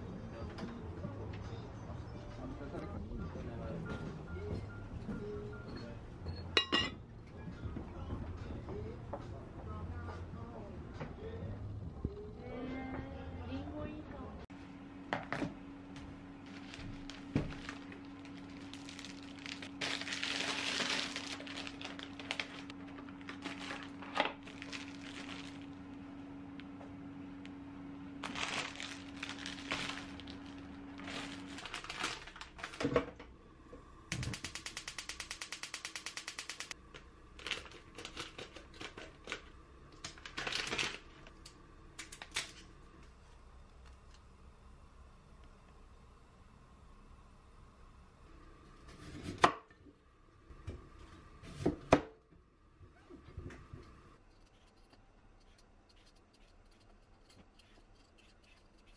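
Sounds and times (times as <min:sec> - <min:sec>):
steady low hum: 0:00.0 - 0:58.9
plastic packaging crinkling: 0:16.4 - 0:25.8, 0:28.2 - 0:32.9, 0:37.4 - 0:41.4.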